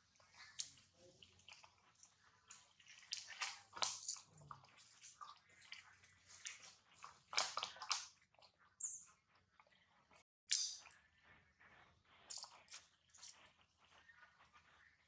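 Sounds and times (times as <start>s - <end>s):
monkey chewing greens: 0.0s - 15.0s.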